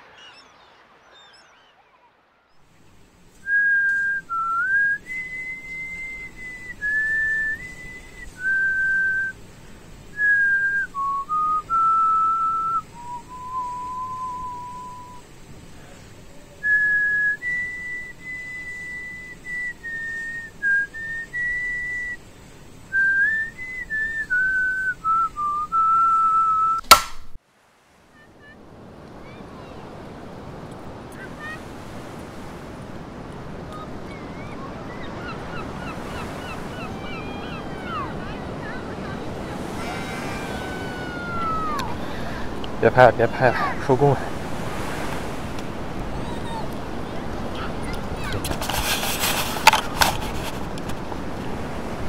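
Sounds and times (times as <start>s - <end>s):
person whistling a slow tune: 3.4s - 9.4s, 10.2s - 15.2s, 16.6s - 22.2s, 22.9s - 26.8s, 40.6s - 42.6s
sharp click: 26.8s - 27.4s.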